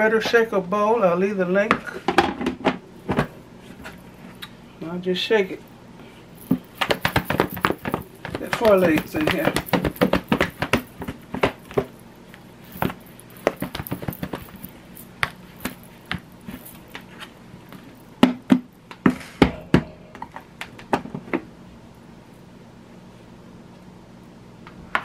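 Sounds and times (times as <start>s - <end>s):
drumsticks knocking in plastic bowl: 6.4s - 11.9s.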